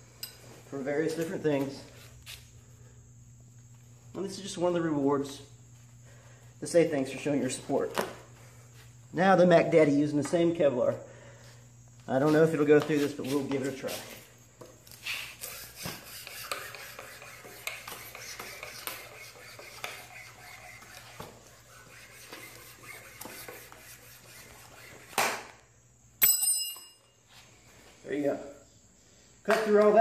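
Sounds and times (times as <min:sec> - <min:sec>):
cord sawing through wood: 0:15.4 - 0:25.2
sharp metallic clink: 0:26.2 - 0:27.2.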